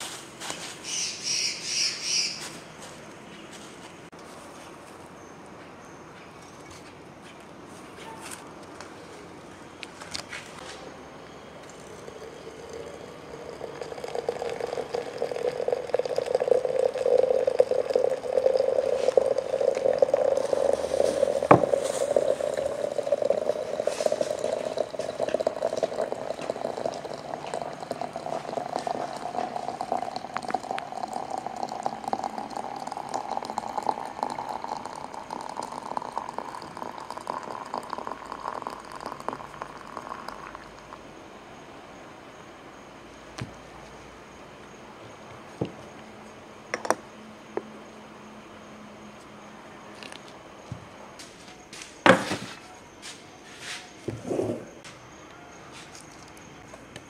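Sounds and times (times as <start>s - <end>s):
liquid pouring into container: 11.6s - 41.0s.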